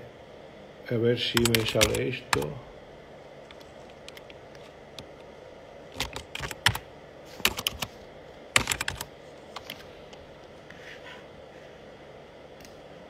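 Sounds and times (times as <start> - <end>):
keyboard typing: 1.4 - 2.6, 3.4 - 5.1, 5.9 - 6.8, 7.4 - 7.9, 8.6 - 9.8.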